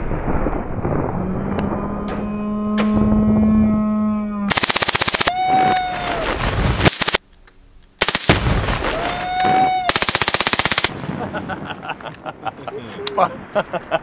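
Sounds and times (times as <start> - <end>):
rifle firing bursts: 4.5 - 5.3, 6.8 - 7.2, 8.0 - 8.5, 9.9 - 11.0.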